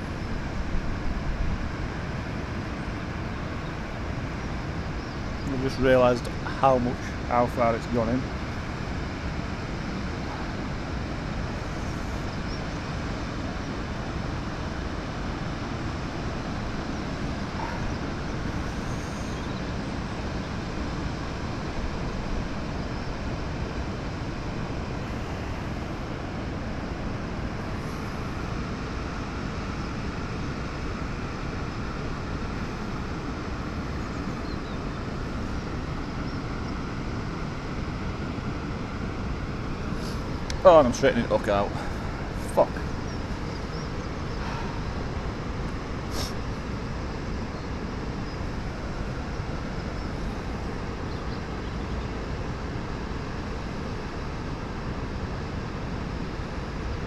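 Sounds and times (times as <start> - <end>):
steady rushing noise: 0.0 - 57.0.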